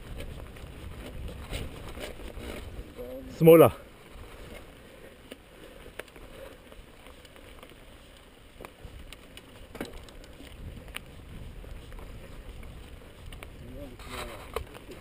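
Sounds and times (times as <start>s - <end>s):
wind rumble on microphone: 0.0s - 3.4s, 8.6s - 15.0s
bike tyres crunching on dirt: 0.0s - 15.0s.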